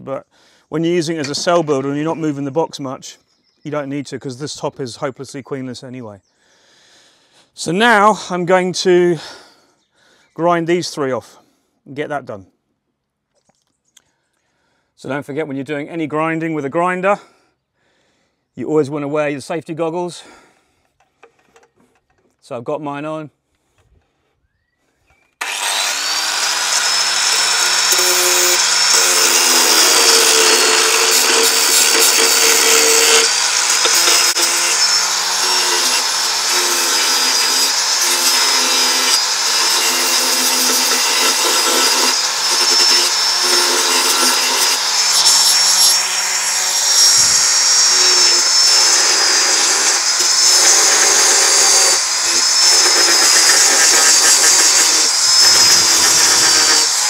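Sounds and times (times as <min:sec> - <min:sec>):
power grinder grinding wood: 0:25.4 - 0:57.0.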